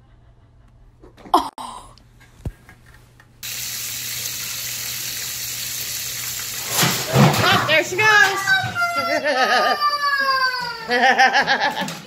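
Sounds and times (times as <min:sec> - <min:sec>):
running water hiss: 0:03.4 - 0:07.9.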